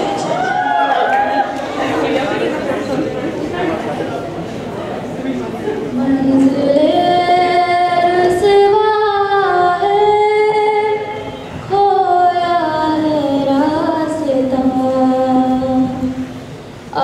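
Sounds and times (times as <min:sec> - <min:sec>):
woman singing: 0:06.0 - 0:16.2.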